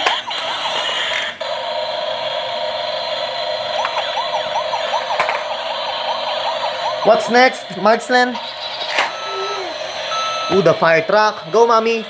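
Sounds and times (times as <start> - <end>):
toy siren fast warble: 0.0 - 1.3, 3.7 - 7.6, 8.4 - 10.7
toy siren steady tone: 0.0 - 10.8.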